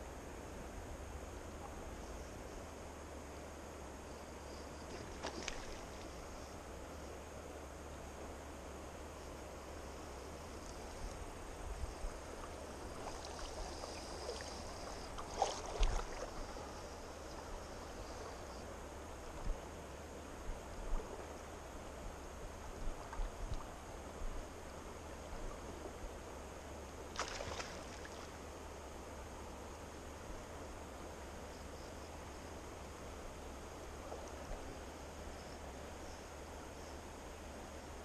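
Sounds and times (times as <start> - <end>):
river water running: 0.0 - 38.0
short water splashes: 4.9 - 6.2, 12.4 - 16.8, 27.1 - 28.4.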